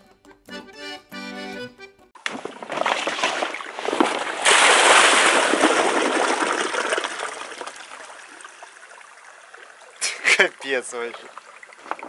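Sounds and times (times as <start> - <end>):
water splashing and pouring: 2.2 - 12.0.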